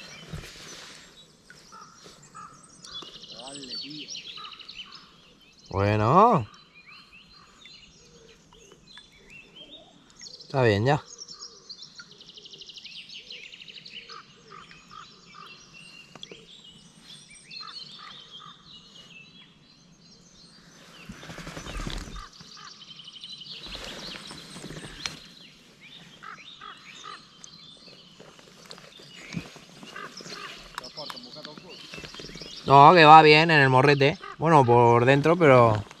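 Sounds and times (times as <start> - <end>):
rustling noise: 0.0 - 2.4, 20.8 - 22.4, 23.6 - 25.7, 28.0 - 31.0, 31.6 - 32.7
birds chirping and trilling: 0.0 - 36.0.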